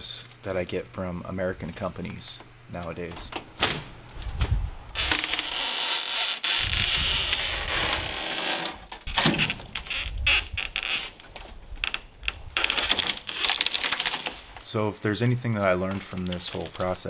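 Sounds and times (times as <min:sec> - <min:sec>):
scraping rustle: 0:04.2 - 0:17.0.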